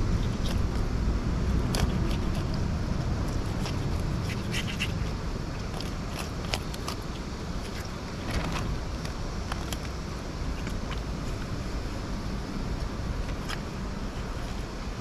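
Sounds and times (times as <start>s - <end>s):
steady low rumble: 0.0s - 15.0s
knife scraping fish scales: 3.3s - 7.0s.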